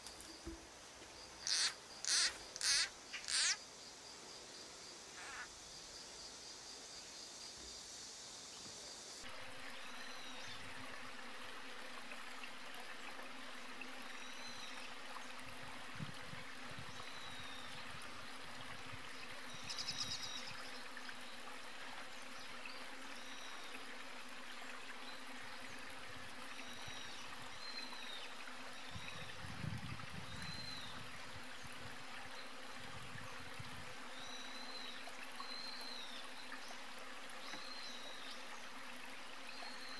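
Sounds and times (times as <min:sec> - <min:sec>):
insects buzzing: 0:00.0 - 0:15.6
trickling water hiss: 0:00.0 - 0:39.9.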